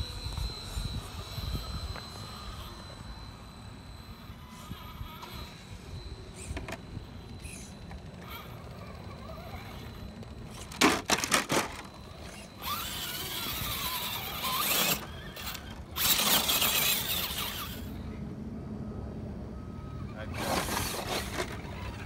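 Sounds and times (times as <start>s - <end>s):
electric motor and gears whining: 0.0s - 22.0s.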